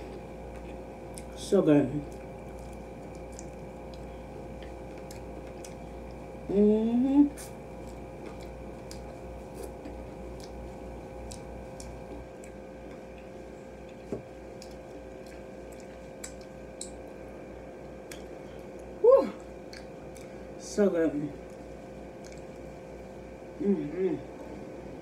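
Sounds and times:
chewing food: 0.0s - 6.5s, 7.4s - 20.6s, 21.4s - 23.0s
air-conditioner hum: 0.0s - 25.0s
person humming: 19.0s - 19.5s, 23.6s - 24.3s.

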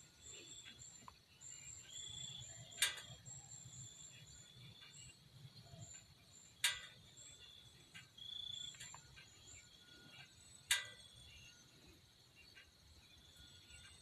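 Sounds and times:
sharp ringing clicks: 2.3s - 5.0s, 5.8s - 11.6s.

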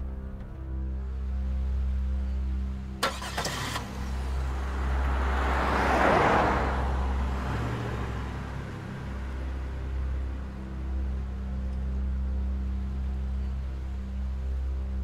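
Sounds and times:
van driving past: 3.0s - 10.9s.

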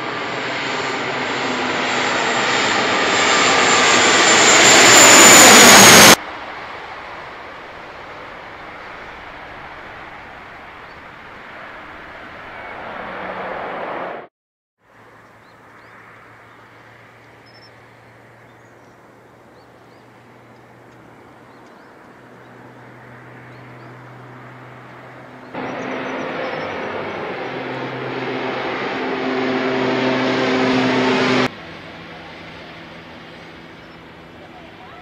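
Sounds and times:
aircraft drone overhead: 0.0s - 14.3s, 14.9s - 35.0s
aircraft engine hum: 0.0s - 14.3s, 14.9s - 35.0s
propeller roar: 0.0s - 14.3s, 14.9s - 35.0s.

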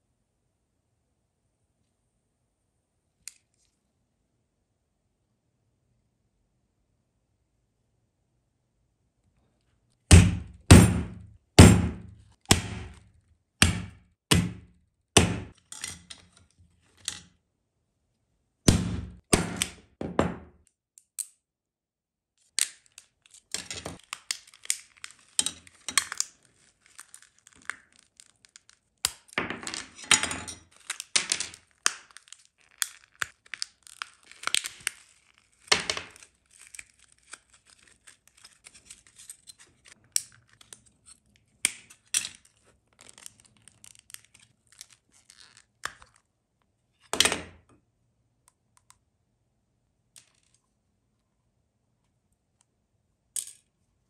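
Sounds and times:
hammer striking plastic doll: 10.1s - 15.6s, 18.7s - 20.6s
rustling and crinkling: 22.7s - 29.0s, 30.6s - 46.3s.

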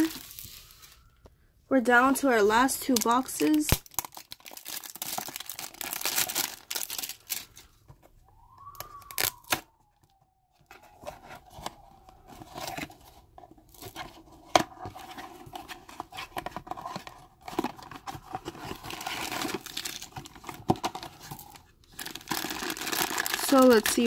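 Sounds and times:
plastic shrink wrap crinkling and tearing: 0.0s - 1.1s, 2.8s - 7.8s, 9.0s - 9.6s, 14.9s - 24.0s.

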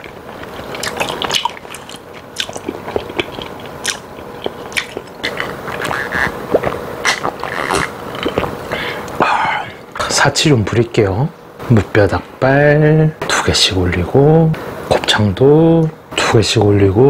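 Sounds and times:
wet chewing: 0.0s - 9.2s
sipping a drink: 0.4s - 9.8s.

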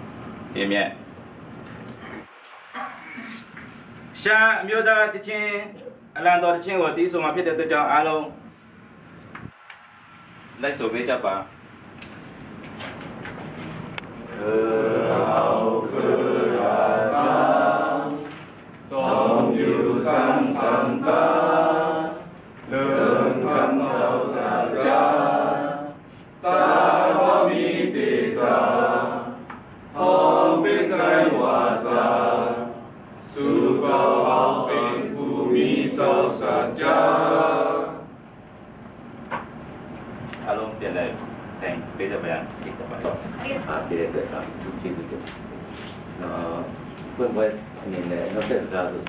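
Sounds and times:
men singing unaccompanied: 14.3s - 38.1s.

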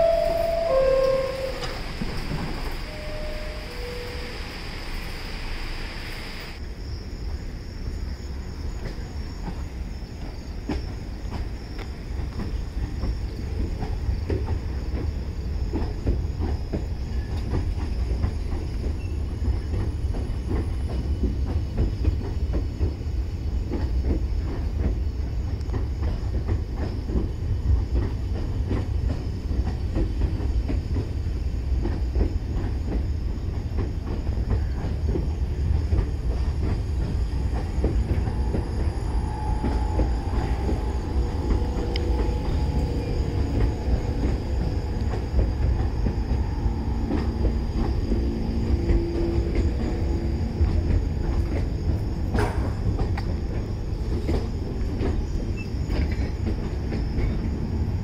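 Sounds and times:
thin wheel squeal: 0.0s - 5.0s, 37.4s - 50.1s
wheels clicking over rail joints: 0.0s - 5.2s, 8.7s - 58.0s
subway train rumbling: 0.0s - 58.0s.

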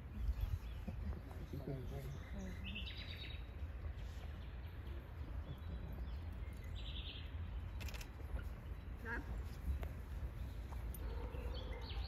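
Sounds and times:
wind rumble on microphone: 0.0s - 1.7s.

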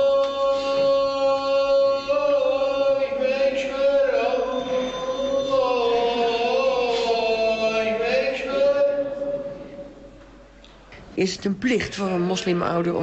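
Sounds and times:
man chanting a prayer: 0.0s - 9.9s.

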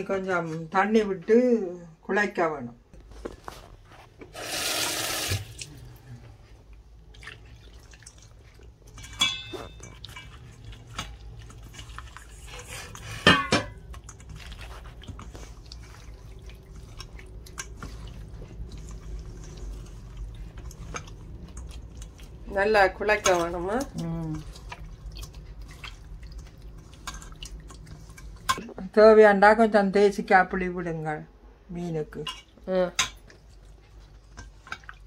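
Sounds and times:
tap water running into steel bowl: 4.4s - 5.6s
hands squishing wet paste: 5.6s - 13.1s, 13.8s - 28.7s, 33.2s - 35.0s.

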